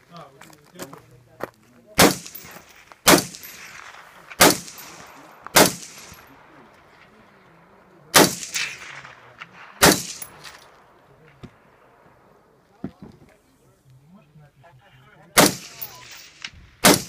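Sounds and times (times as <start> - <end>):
rifle shots with echo: 1.9 - 12.6, 15.4 - 17.0.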